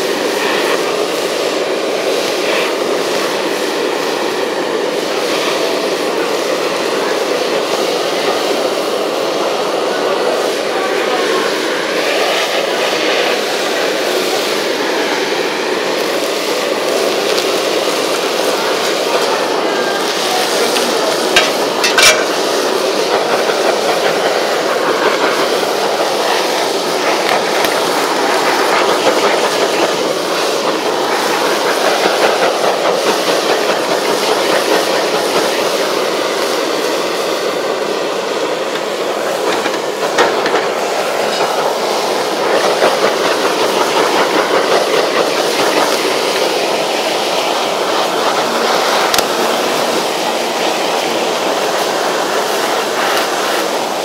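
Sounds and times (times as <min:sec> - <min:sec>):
blowtorch flame hissing: 0:00.0 - 0:54.0
food sizzling on a griddle: 0:16.0 - 0:23.0.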